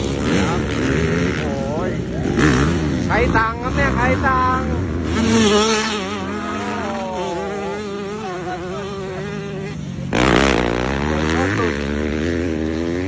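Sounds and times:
distant motorbikes: 0:00.0 - 0:13.0
motocross bike engine revving: 0:00.0 - 0:13.0.

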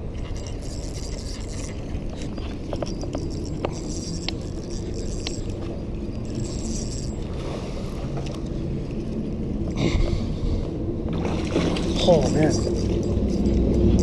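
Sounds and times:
outdoor rumble and hiss: 0:00.0 - 0:14.0
fishing reel clicks: 0:00.2 - 0:07.3, 0:11.8 - 0:14.0.

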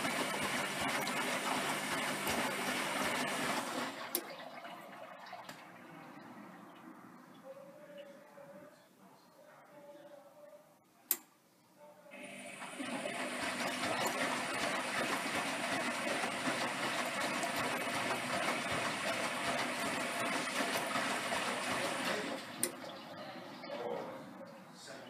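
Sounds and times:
water rushing into washing machine: 0:00.0 - 0:06.7, 0:12.2 - 0:23.0.

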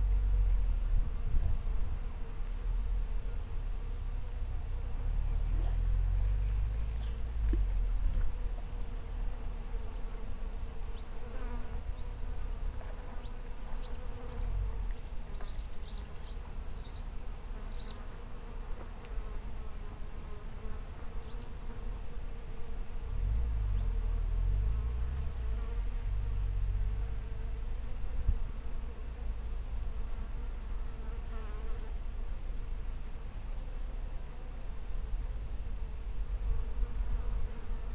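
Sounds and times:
low rumble: 0:00.0 - 0:09.4, 0:23.1 - 0:27.6
insect buzzing: 0:00.0 - 0:37.9.

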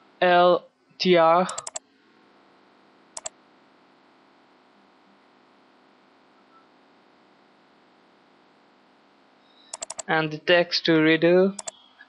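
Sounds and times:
faint steady hum and hiss: 0:00.0 - 0:12.0
computer mouse clicks: 0:01.5 - 0:01.8, 0:09.7 - 0:10.1, 0:11.6 - 0:11.8.

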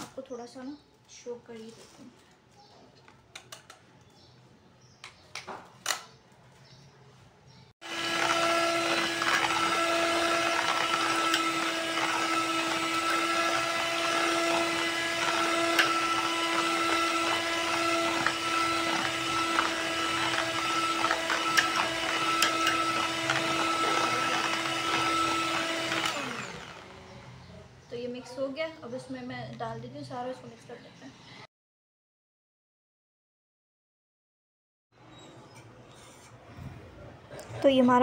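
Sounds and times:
electric hand mixer running: 0:07.8 - 0:27.4.

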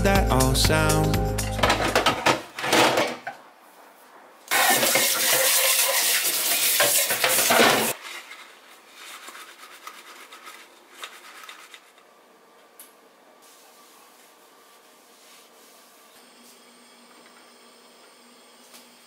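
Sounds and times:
plastic parts clattering in sink: 0:01.6 - 0:03.4, 0:04.5 - 0:08.5
tap water running: 0:04.5 - 0:08.0.

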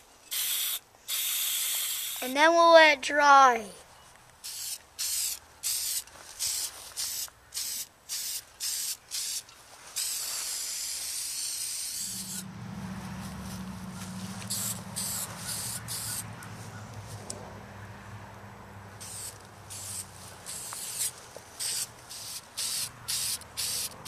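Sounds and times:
spray can hissing: 0:00.3 - 0:02.3, 0:04.4 - 0:12.4, 0:14.4 - 0:16.2, 0:19.0 - 0:24.0
low steady hum: 0:12.0 - 0:15.4.

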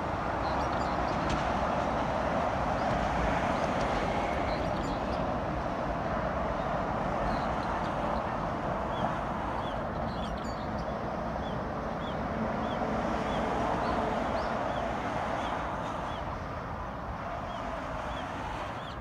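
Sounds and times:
traffic roar: 0:00.0 - 0:19.0
bird chirping: 0:09.6 - 0:14.8.

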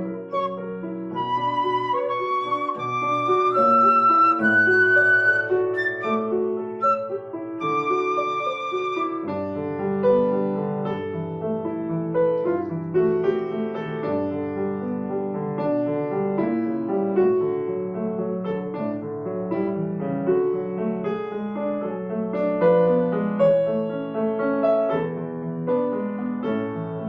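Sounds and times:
grand piano playing: 0:00.0 - 0:27.0
flute notes with vibrato: 0:00.3 - 0:09.5.

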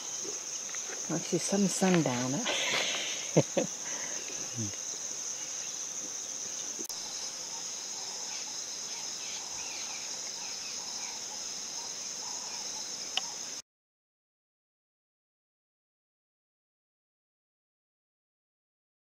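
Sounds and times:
crickets trilling: 0:00.0 - 0:13.6.

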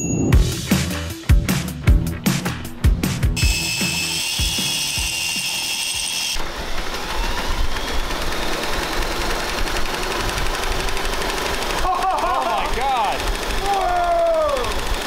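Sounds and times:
cordless drill whirring: 0:03.4 - 0:11.8, 0:12.4 - 0:15.0
angle grinder grinding metal: 0:03.4 - 0:15.0.

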